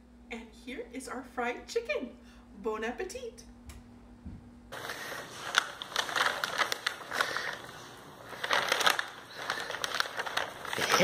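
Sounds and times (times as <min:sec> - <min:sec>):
paper bag crinkling: 0:04.7 - 0:11.0.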